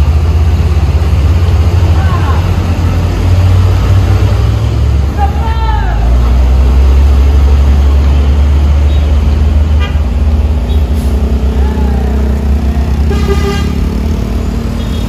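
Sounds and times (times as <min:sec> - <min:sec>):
truck diesel engine rumbling: 0:00.0 - 0:15.0
horn toot: 0:12.9 - 0:13.9.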